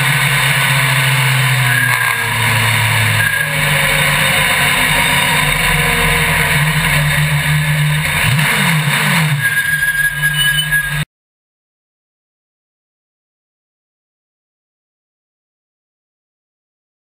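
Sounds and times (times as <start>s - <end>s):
race vehicle rumbling: 0.0s - 11.1s.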